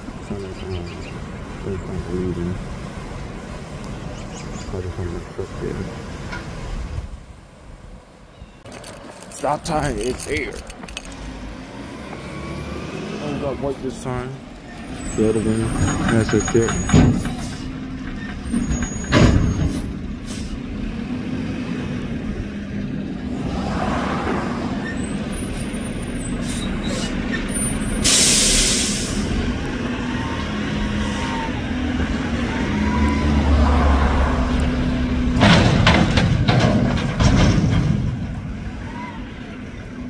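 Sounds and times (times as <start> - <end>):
metal dumpster clanking: 15.6 - 20.0, 35.3 - 38.5
air brake hiss: 19.7 - 20.6, 27.9 - 29.4.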